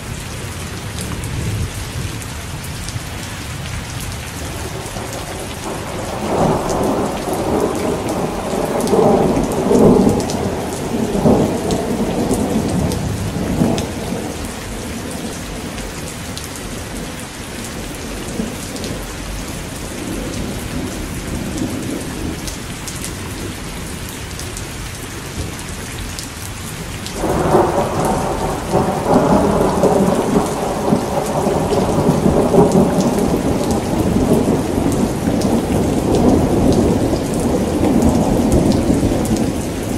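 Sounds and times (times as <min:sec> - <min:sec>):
steady rain falling: 0:00.0 - 0:39.9
thunder rumbling: 0:04.4 - 0:22.5, 0:27.2 - 0:39.9.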